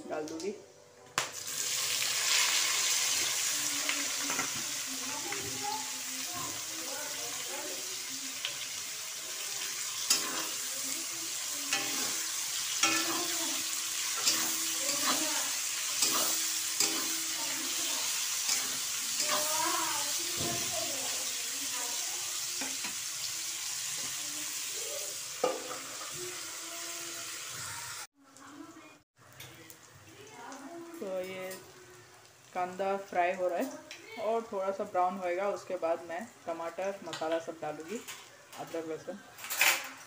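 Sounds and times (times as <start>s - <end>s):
onions sizzling in oil: 1.2s - 39.1s
spatula scraping metal pan: 9.7s - 10.8s, 11.6s - 19.8s.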